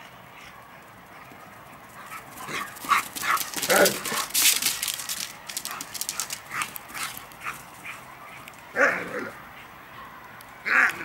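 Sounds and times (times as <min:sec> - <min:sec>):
dogs yipping: 0:02.0 - 0:04.4
dog claws clicking: 0:02.8 - 0:07.3.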